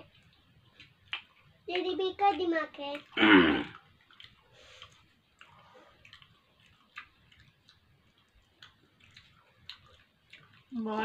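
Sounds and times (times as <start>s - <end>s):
people chewing: 0.0s - 11.0s
vocal sound falling in pitch: 3.2s - 3.8s.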